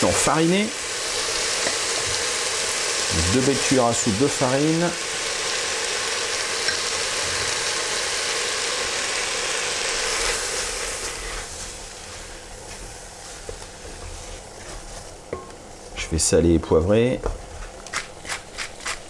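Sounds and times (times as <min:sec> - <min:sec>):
vegetables sizzling in oil: 0:00.0 - 0:15.9.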